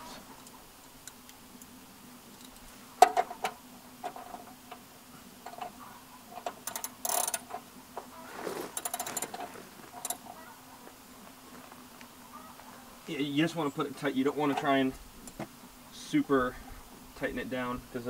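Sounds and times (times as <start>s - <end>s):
metal clicks: 6.4s - 7.6s
ratchet wrench clicking: 6.6s - 7.5s, 8.8s - 9.4s, 10.0s - 10.2s.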